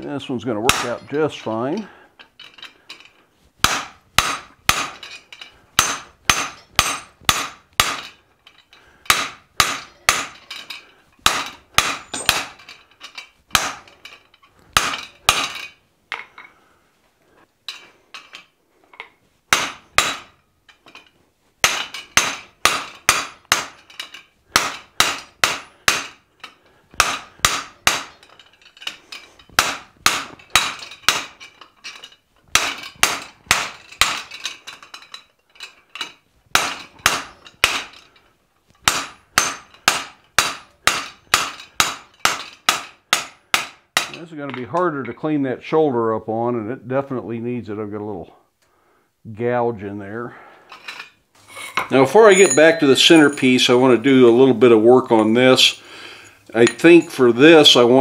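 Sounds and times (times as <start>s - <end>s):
hammer striking metal: 0.7s - 1.2s, 3.6s - 5.1s, 5.8s - 8.1s, 9.1s - 10.4s, 11.2s - 12.6s, 13.5s - 14.0s, 14.8s - 15.6s, 19.5s - 20.4s, 21.6s - 23.8s, 24.5s - 26.2s, 27.0s - 28.2s, 29.6s - 31.4s, 38.8s - 44.2s, 51.7s - 53.8s, 56.6s - 57.3s.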